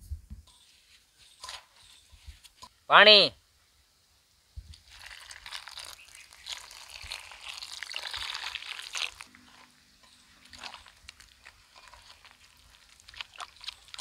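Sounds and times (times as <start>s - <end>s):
hand mixing wet paste: 4.7s - 14.0s
water pouring into metal bowl: 4.8s - 14.0s.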